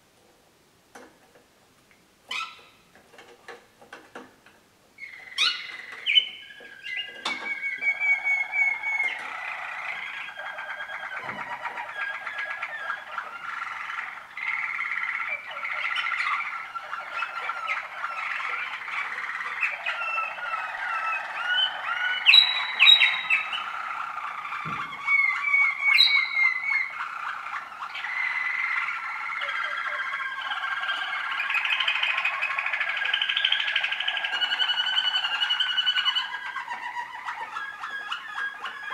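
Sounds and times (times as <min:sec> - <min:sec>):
canaries singing trills: 0:02.3 - 0:04.2, 0:05.0 - 0:38.9.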